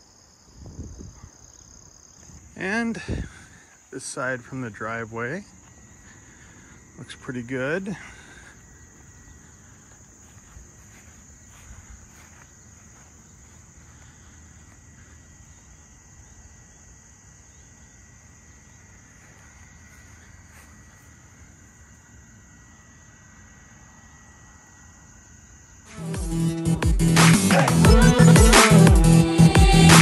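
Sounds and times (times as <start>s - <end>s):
crickets chirping: 0.0s - 30.0s
soft footsteps: 5.4s - 7.0s, 8.5s - 15.8s, 19.0s - 21.4s.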